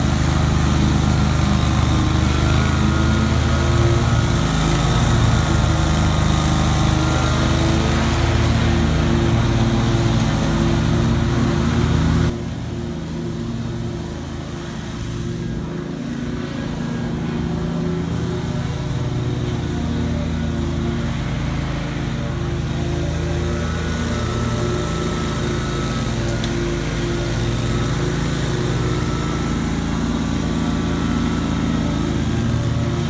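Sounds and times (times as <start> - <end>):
mower engine running: 0.0 - 33.0.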